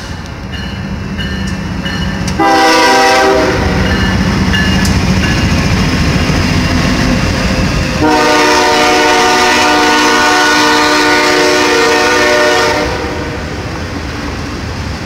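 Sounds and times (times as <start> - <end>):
freight train rumbling: 0.0 - 15.0
locomotive air horn: 2.4 - 4.0, 8.0 - 13.4.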